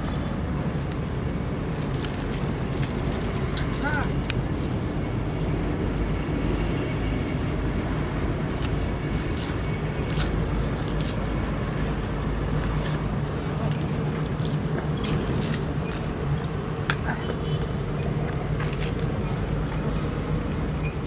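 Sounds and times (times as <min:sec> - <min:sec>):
insects trilling: 0:00.0 - 0:21.0.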